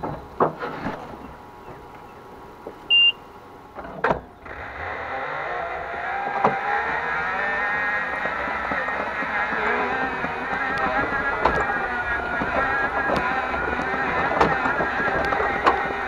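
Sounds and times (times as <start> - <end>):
short electronic beep: 2.9 - 3.2
electric mower motors whining: 3.7 - 16.0.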